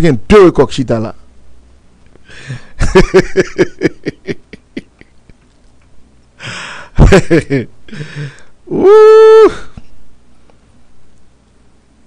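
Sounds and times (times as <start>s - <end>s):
man laughing: 2.4s - 5.5s, 6.4s - 9.7s.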